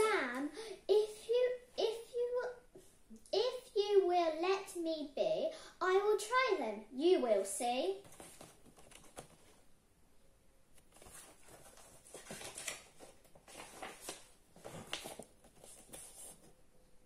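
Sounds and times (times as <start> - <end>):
paper pages rustling: 8.0 - 9.6, 10.8 - 16.6.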